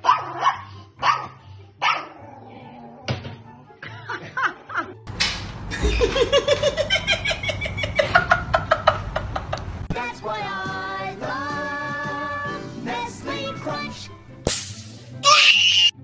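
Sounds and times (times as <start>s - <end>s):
dog yelps: 0.0s - 2.2s, 15.2s - 16.0s
person laughing hard: 5.7s - 9.8s.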